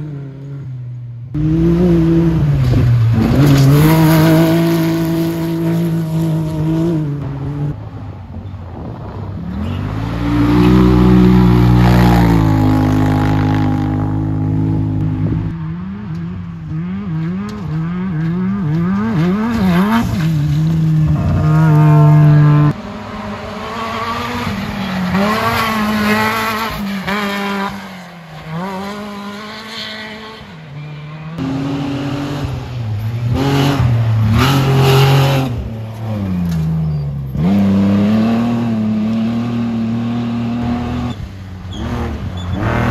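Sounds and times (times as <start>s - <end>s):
vehicle engines revving hard: 0.0s - 7.9s, 8.7s - 42.9s.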